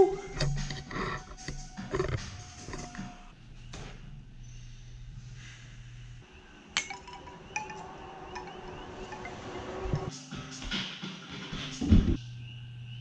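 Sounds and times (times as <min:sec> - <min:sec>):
wind chime ringing: 0:06.8 - 0:10.1.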